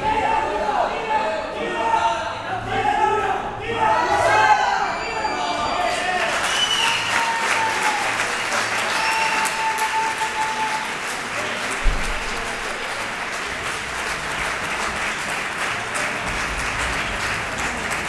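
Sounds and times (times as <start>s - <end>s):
crowd applause: 4.1s - 18.0s.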